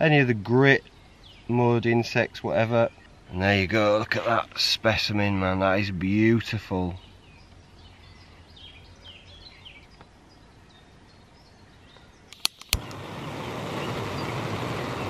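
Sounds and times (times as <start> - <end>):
birds chirping: 0.0 - 15.0
igniter clicks: 12.3 - 13.1
gas burner hissing: 12.4 - 15.0.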